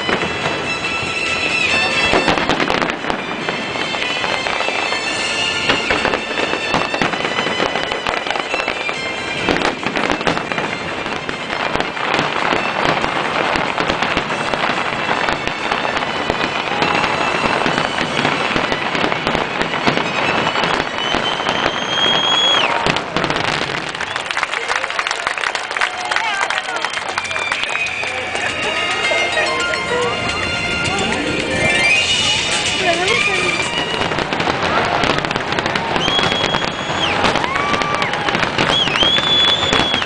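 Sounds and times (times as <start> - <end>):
music playing: 0.0 - 21.5, 27.0 - 36.0
firework bangs: 0.0 - 24.8, 26.2 - 40.0
firework crackling: 0.0 - 40.0
rising firework whistle: 0.0 - 40.0.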